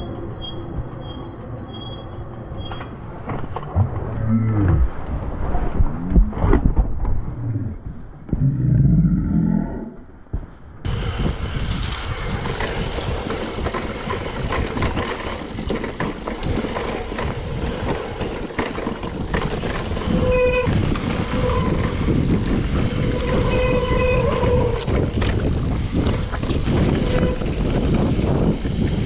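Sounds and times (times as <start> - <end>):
disc brakes squealing: 0.0 - 3.0, 20.0 - 25.1
bike rattling over rocks: 11.0 - 29.0.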